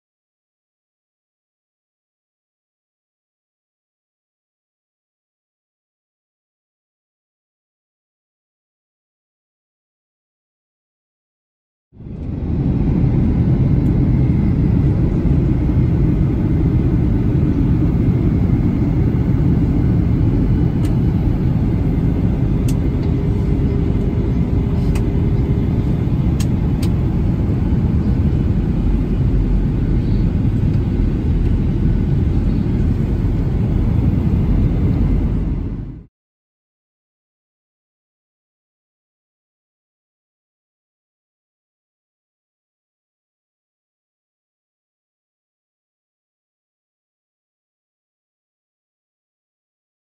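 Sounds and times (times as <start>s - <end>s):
airplane cabin engine rumble: 12.0s - 36.1s.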